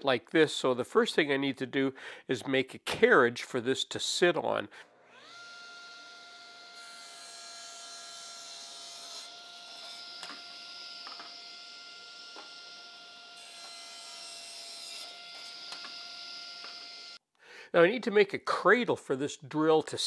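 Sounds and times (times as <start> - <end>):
table saw whining: 4.9 - 17.2.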